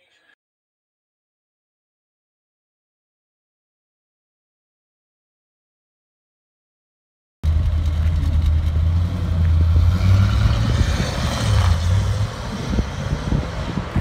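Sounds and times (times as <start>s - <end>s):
car exhaust driving away: 7.4s - 14.0s.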